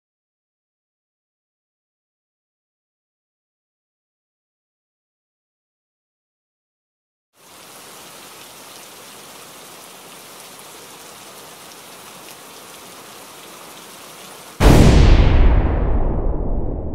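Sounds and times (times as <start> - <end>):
rain-like hissing: 7.4 - 15.2
loud ringing boom: 14.6 - 16.9.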